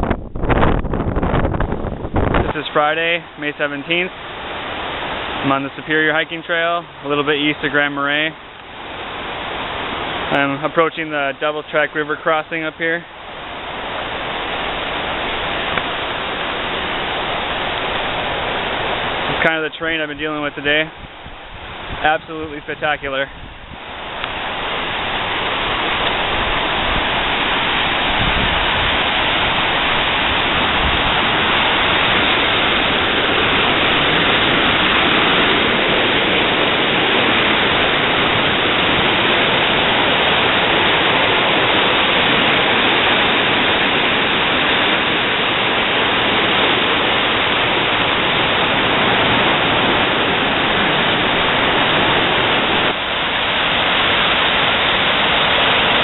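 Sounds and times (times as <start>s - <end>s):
whitewater rapids rushing: 2.2s - 56.0s.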